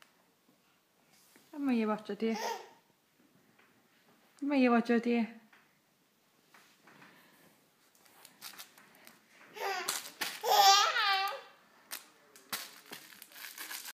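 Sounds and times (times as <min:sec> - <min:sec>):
baby cooing: 0:02.3 - 0:02.8, 0:09.5 - 0:11.6.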